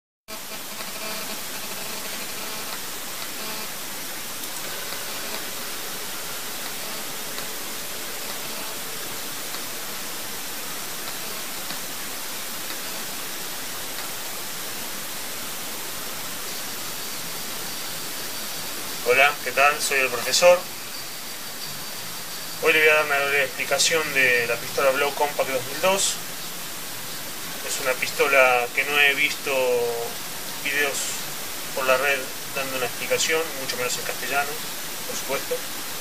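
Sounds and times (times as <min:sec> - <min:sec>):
steady background hiss: 0:00.3 - 0:36.0.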